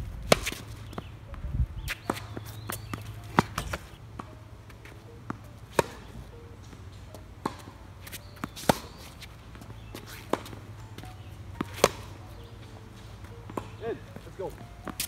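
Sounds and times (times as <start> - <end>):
racket striking tennis ball: 0.2 - 1.1, 1.8 - 15.0
ball bouncing on hard court: 0.3 - 1.1, 1.8 - 15.0.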